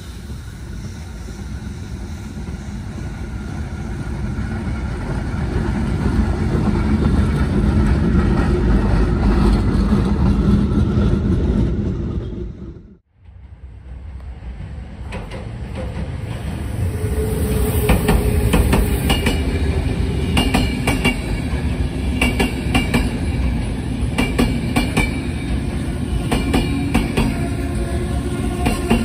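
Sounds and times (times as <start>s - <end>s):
train wheels rumbling: 0.0s - 29.0s.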